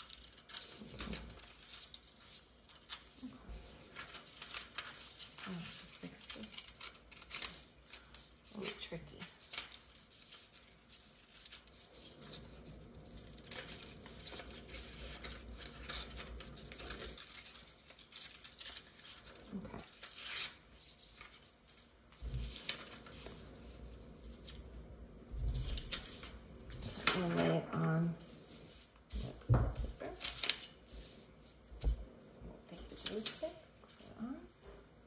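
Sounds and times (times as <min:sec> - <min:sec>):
scissors snipping paper: 0:00.0 - 0:02.1
paper rustling and crinkling: 0:00.0 - 0:34.4.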